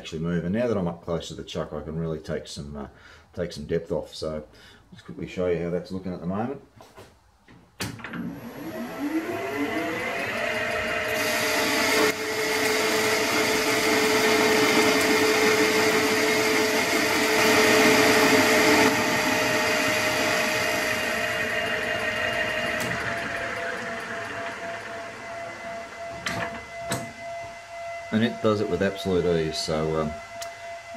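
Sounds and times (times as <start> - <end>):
metal lathe whine: 8.2 - 30.9
lathe cutting metal bar: 8.4 - 27.2.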